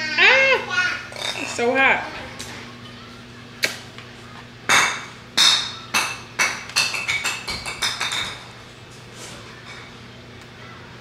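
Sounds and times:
tableware clinking: 0:01.1 - 0:01.8, 0:04.7 - 0:08.6.

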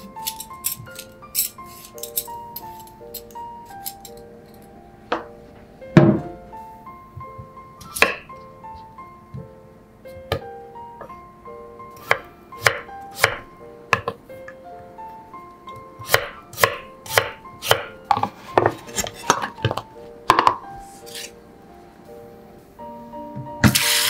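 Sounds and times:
knife chopping potato on board: 0:12.0 - 0:14.2, 0:16.0 - 0:18.7.

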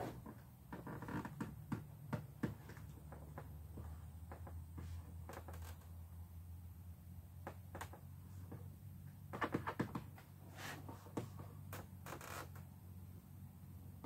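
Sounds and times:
plastic clicks knocks and creaks: 0:09.3 - 0:10.2.

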